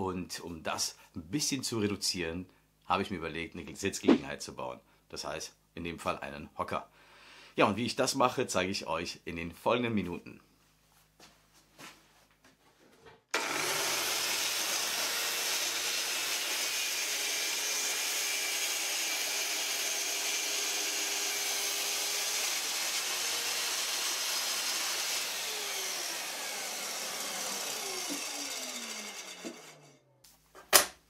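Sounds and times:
circular saw cutting a board: 0:13.3 - 0:30.2.

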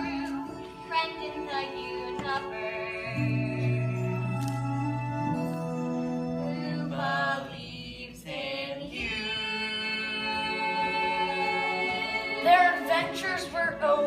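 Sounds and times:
musical backing: 0:00.0 - 0:14.0.

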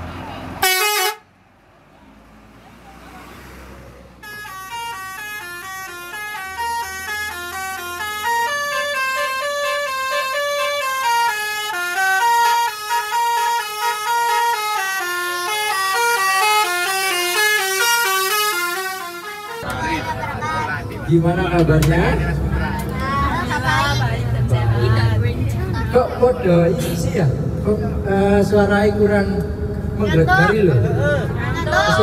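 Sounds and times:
musical bus horn melody: 0:00.6 - 0:01.3, 0:04.2 - 0:24.2
low engine rumble: 0:19.5 - 0:32.0.

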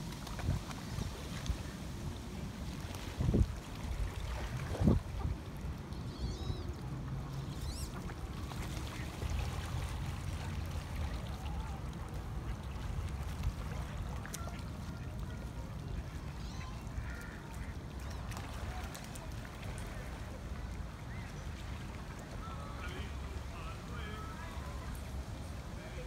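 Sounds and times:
wind rumbling on microphone: 0:00.0 - 0:08.4
faint bird calls: 0:05.9 - 0:08.1, 0:15.9 - 0:18.8.

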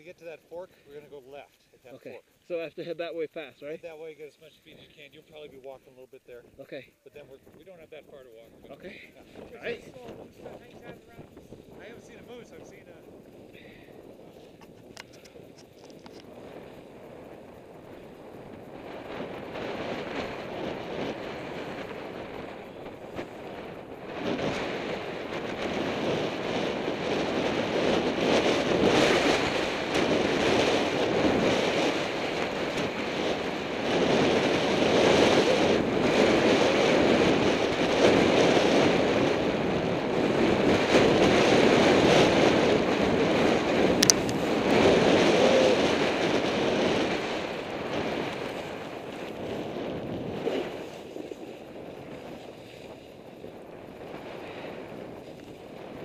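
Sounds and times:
wind on microphone: 0:03.6 - 0:56.0
sharp click: 0:44.0 - 0:44.4.

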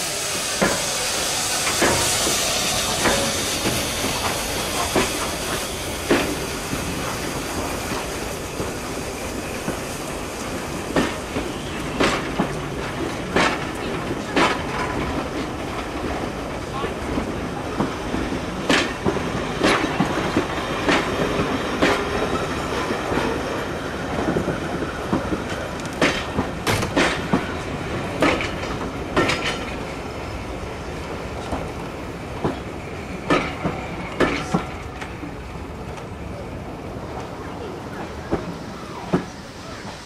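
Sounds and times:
train rumbling: 0:00.0 - 0:40.0
train wheels clicking over rail joints: 0:00.1 - 0:36.2, 0:38.0 - 0:40.0.

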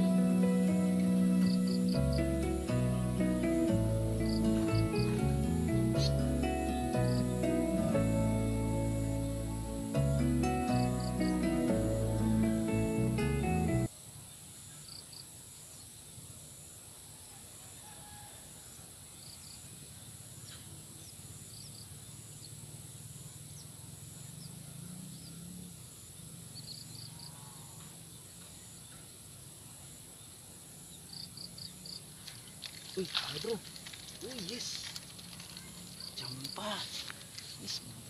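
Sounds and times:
background music: 0:00.0 - 0:13.9
insect drone: 0:00.0 - 0:38.0.

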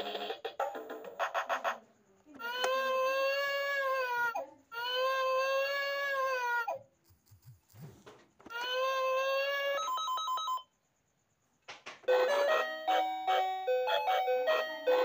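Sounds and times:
beeping ringtone tone: 0:09.8 - 0:10.7.

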